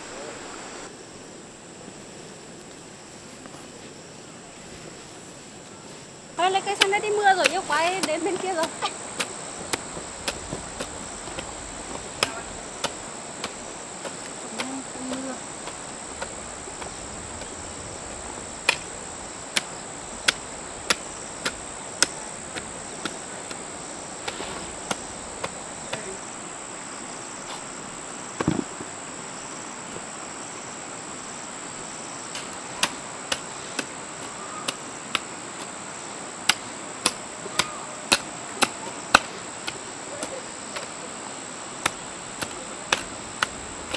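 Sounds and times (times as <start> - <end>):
insects chirring: 0.0 - 43.9
dull thump: 28.4 - 28.9.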